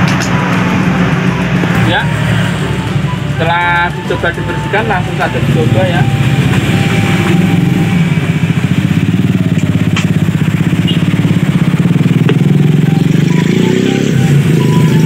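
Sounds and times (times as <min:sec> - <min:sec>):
small engine running: 0:04.4 - 0:15.0.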